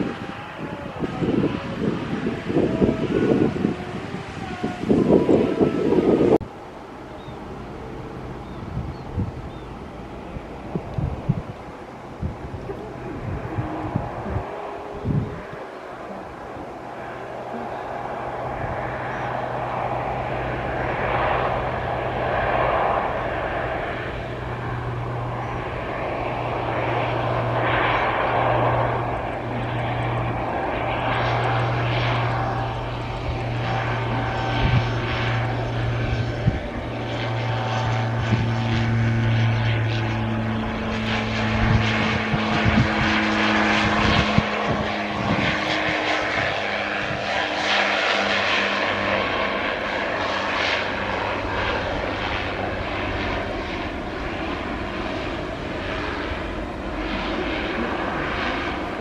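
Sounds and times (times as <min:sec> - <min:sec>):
propeller aircraft drone: 0:00.0 - 0:59.0.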